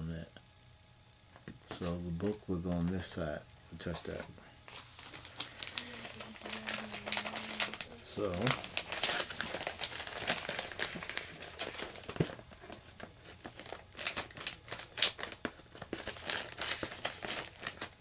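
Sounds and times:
plastic bag crinkling: 4.7 - 18.0.

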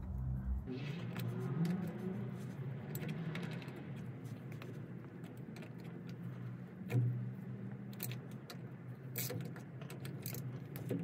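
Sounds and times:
low steady hum: 0.0 - 0.8
spanner clinking on steel bolts: 5.2 - 11.0.

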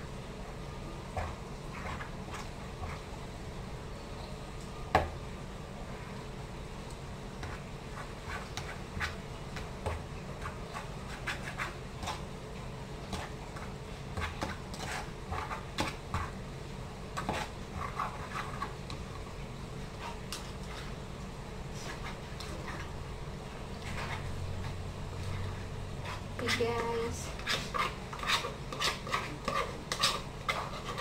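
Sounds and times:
steady low hum: 0.0 - 31.0
spoon scraping in bowl: 27.3 - 31.0.

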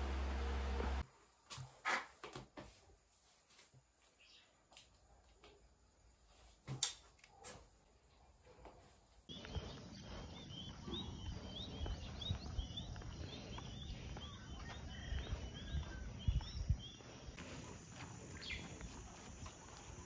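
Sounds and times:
outdoor background noise: 0.0 - 20.0
footsteps on concrete: 8.6 - 20.0
small bird chirping: 9.3 - 20.0.

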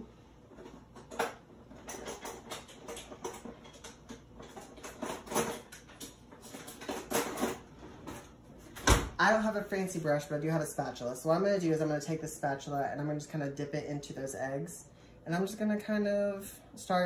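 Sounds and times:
kitchen utensils clicking and knocking: 0.6 - 8.3.

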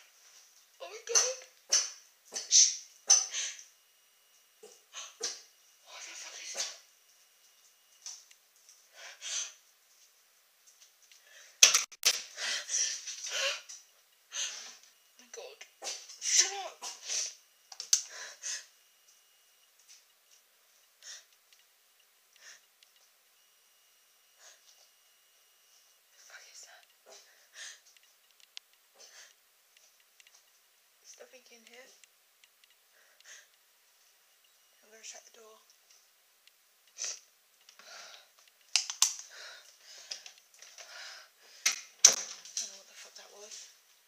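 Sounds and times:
faint breaths: 32.8 - 34.3, 37.0 - 38.5, 39.2 - 41.9.

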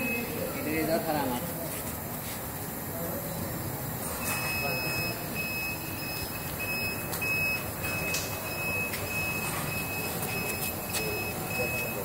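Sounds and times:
alarm buzzer beeping: 0.0 - 0.5, 4.1 - 12.0
machine running noise: 0.0 - 12.0.

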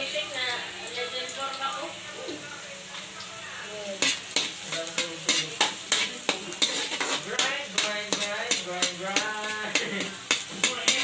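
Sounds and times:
garlic sizzling in hot oil: 0.0 - 11.0
metal spatula scraping a wok: 3.9 - 11.0.

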